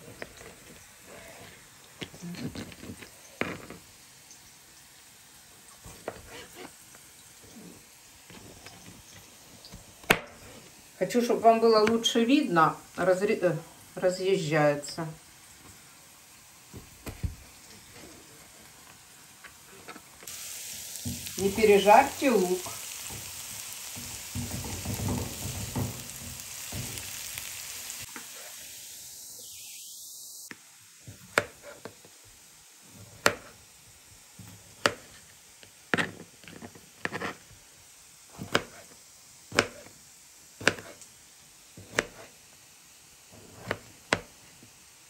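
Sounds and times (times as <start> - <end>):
onion sizzling in a pan: 0.0 - 45.0
utensil tapping a pan: 24.0 - 27.0.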